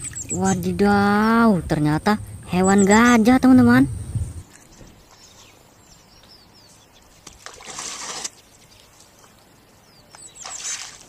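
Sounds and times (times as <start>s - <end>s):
water splashing and trickling: 0.0s - 1.6s, 7.0s - 11.0s
small birds chirping: 0.0s - 7.5s, 8.4s - 11.0s.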